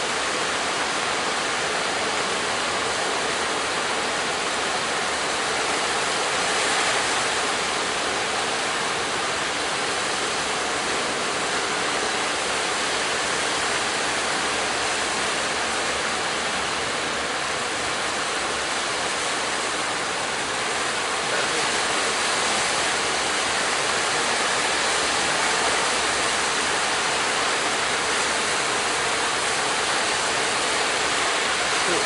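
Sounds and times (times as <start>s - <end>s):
breaking surf and churning water: 0.0s - 32.0s.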